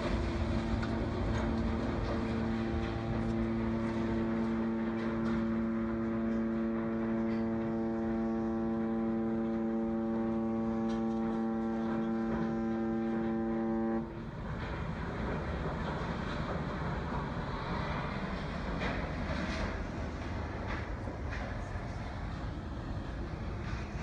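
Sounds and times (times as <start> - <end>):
wind rumble: 0.0 - 12.7
ship horn blast: 0.0 - 14.3.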